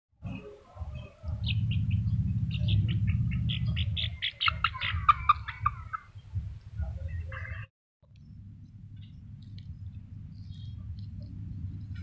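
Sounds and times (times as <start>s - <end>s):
small animals chirping and squeaking: 0.3s - 7.7s
steady low rumble: 0.8s - 12.0s.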